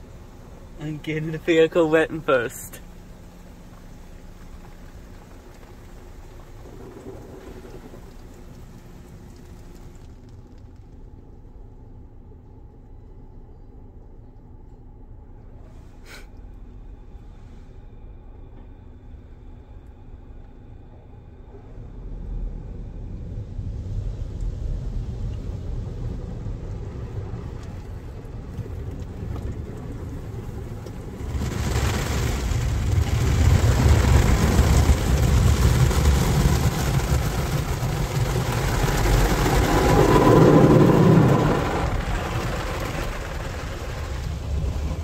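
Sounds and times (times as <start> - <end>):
car wash low rumble: 0.0 - 45.0
water spray rushing against car: 4.0 - 10.3, 23.2 - 45.0.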